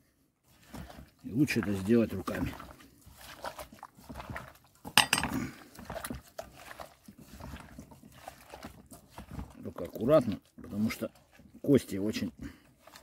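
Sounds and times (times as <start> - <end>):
hand squelching fish and sauce: 0.0 - 13.0
metal spoon clinking pot: 5.0 - 5.4.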